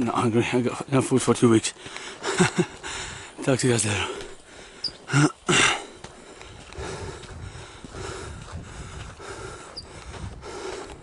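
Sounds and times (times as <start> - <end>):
footsteps crunching on dirt: 1.2 - 11.0
wind rumbling on microphone: 2.8 - 3.3, 6.3 - 11.0.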